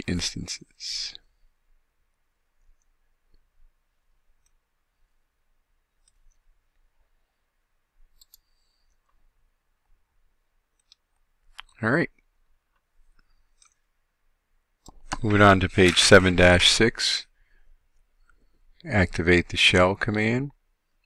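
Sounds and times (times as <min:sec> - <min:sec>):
computer mouse clicks: 0:04.4 - 0:04.6, 0:06.0 - 0:06.8, 0:08.1 - 0:09.2, 0:10.7 - 0:11.8, 0:12.7 - 0:13.8.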